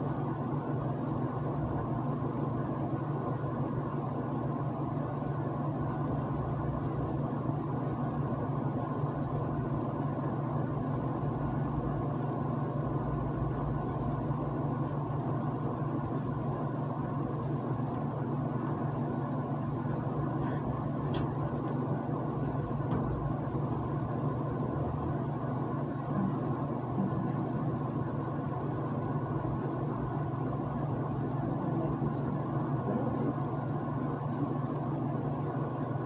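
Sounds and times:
low hum: 10.8s - 36.0s.

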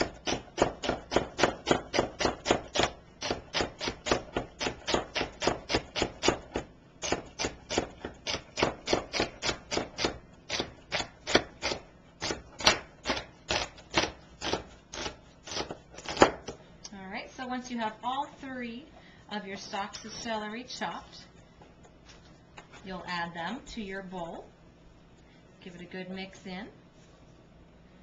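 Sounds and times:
knife chopping on cutting board: 0.0s - 16.6s.

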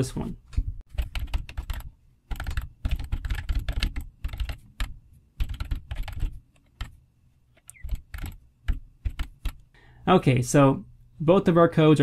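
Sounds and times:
typing on computer keyboard: 0.9s - 7.0s, 7.6s - 9.7s.

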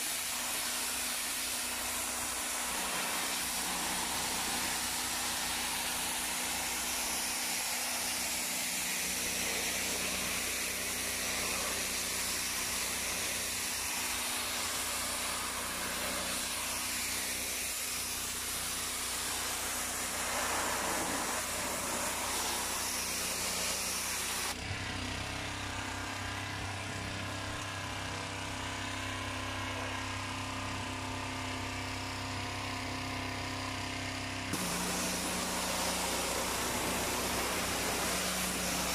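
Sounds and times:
water jet hissing on concrete: 0.0s - 24.6s, 34.5s - 38.9s
pressure washer engine hum: 0.0s - 38.9s.

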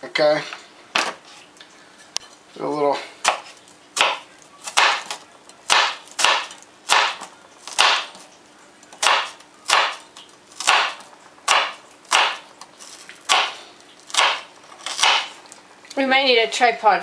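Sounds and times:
knife slicing onion on cutting board: 3.2s - 8.3s, 8.9s - 15.4s.

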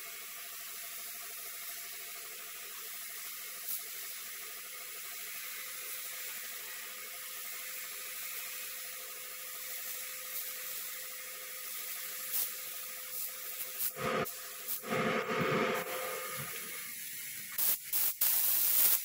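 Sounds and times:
paint spray gun hissing: 11.6s - 19.0s.

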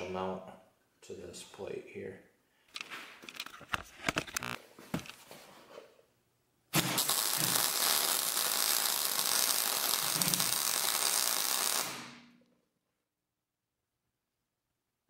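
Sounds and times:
arc welder crackling hiss: 4.4s - 4.6s, 6.8s - 12.3s.

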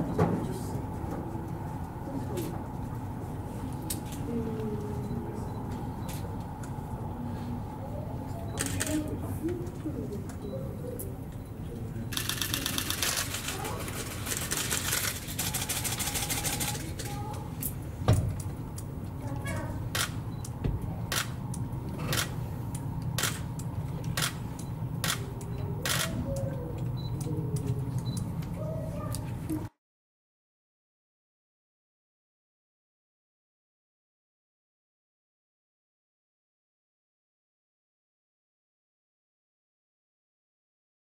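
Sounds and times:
train low rumble: 0.4s - 10.6s
camera shutter burst: 12.1s - 13.6s, 25.0s - 26.2s.

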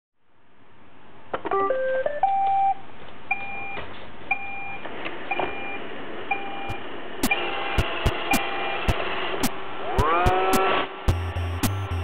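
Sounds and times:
rising electronic beeps: 9.9s - 12.0s.

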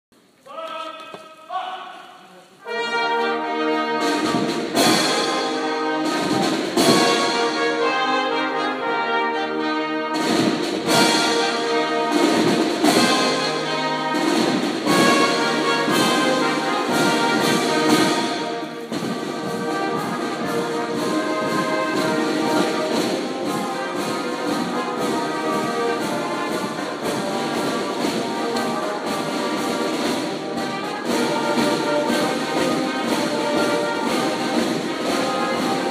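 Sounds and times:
marching band playing: 2.4s - 35.9s.

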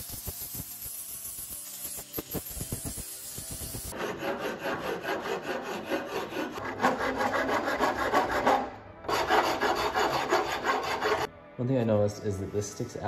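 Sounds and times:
hand file scraping wood: 3.9s - 11.3s.

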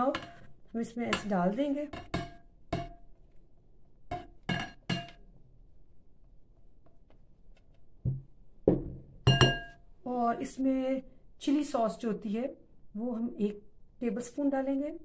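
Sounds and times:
ceramic dishes clinking: 4.1s - 5.2s, 9.3s - 9.8s.

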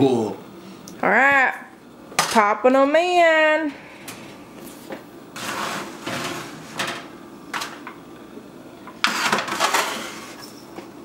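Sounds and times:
foil pans crinkling and scraping: 4.7s - 7.1s, 9.0s - 10.6s.

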